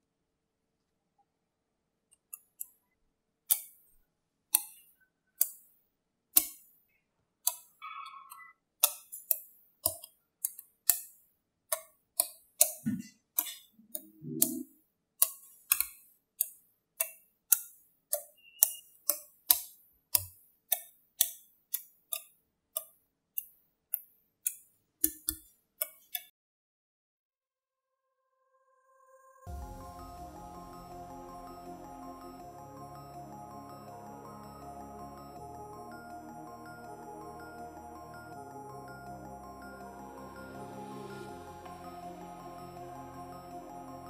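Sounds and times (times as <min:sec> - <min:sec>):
magnetic balls clicking: 0:03.5 - 0:06.8, 0:07.4 - 0:26.3.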